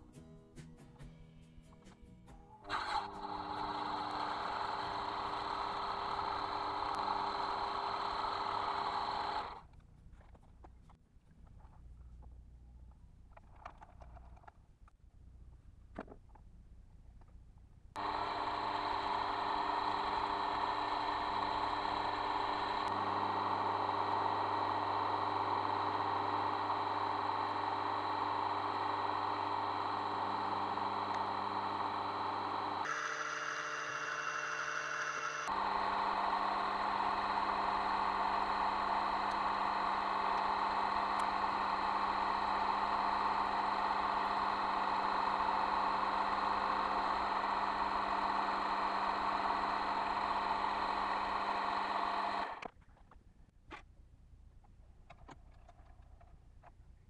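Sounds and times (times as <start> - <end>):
lathe motor whining: 2.7 - 9.6, 18.0 - 52.6.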